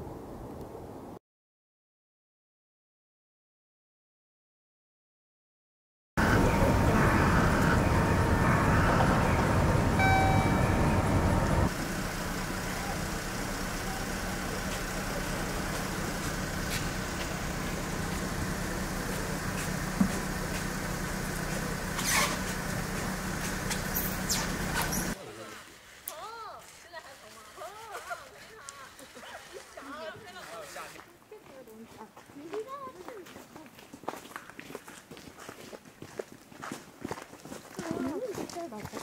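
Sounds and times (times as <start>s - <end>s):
low engine-like hum: 6.2s - 25.2s
road traffic: 6.2s - 30.9s
short beep: 10.0s - 11.7s.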